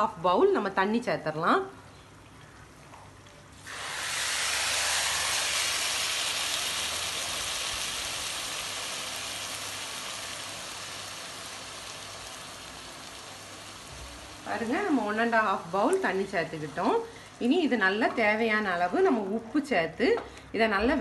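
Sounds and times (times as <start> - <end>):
water sizzling in hot pan: 3.6 - 19.0.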